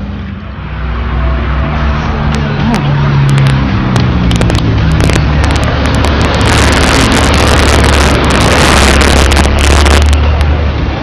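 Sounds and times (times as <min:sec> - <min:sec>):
traffic engine hum: 0:00.0 - 0:11.0
vehicle passing close: 0:00.0 - 0:11.0.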